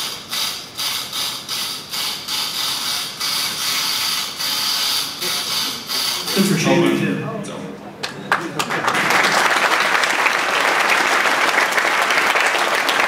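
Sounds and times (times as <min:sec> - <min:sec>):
electric lock pick gun buzzing: 0:00.0 - 0:06.3.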